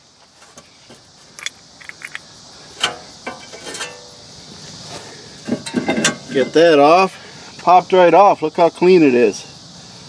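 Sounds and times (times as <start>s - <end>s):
metallic clinks and scrapes: 1.3s - 4.1s.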